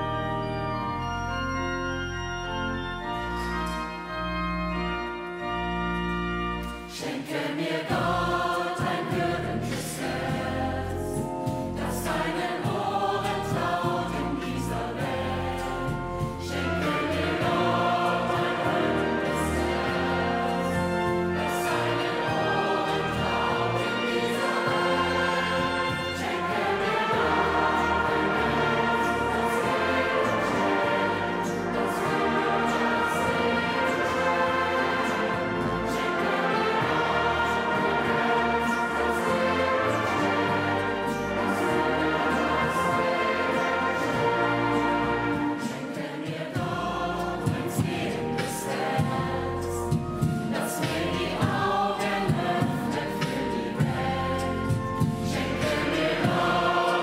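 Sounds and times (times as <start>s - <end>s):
pipe organ chords: 0.0s - 7.0s, 7.6s - 45.8s
choir singing: 3.1s - 57.0s.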